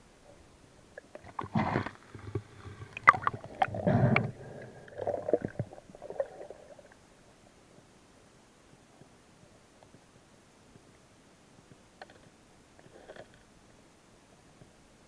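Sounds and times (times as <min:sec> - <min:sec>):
underwater gurgling: 0:00.8 - 0:07.3.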